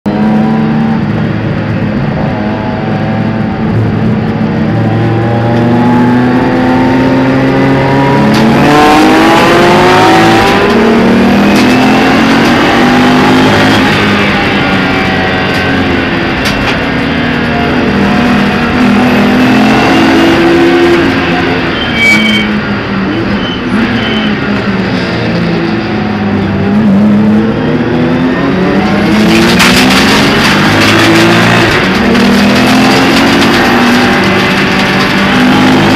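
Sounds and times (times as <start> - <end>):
racing car engine revving: 0.1 - 21.9, 22.6 - 35.9.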